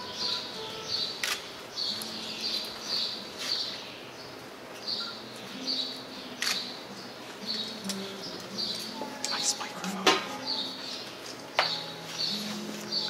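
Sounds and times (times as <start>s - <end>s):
bird chirping: 0.0s - 13.0s
sharp clicks: 6.4s - 6.7s.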